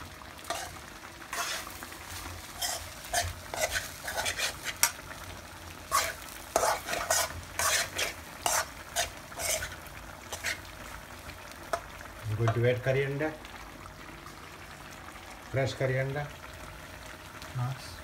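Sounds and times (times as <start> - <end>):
low sizzle: 0.0 - 18.0
metal spoon scraping rice in pan: 0.5 - 1.8, 2.5 - 5.0, 5.9 - 10.6.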